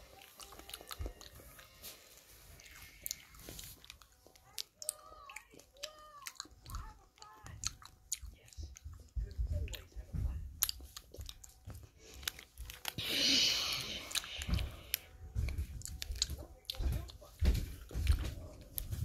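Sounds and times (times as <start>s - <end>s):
wet chewing of candy: 0.0s - 19.0s.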